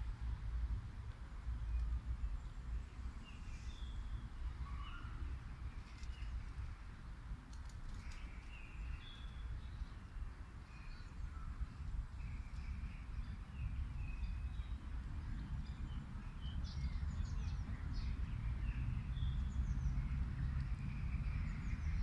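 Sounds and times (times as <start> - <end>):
small birds chirping: 7.9 - 22.0
steady low rumble: 9.2 - 22.0.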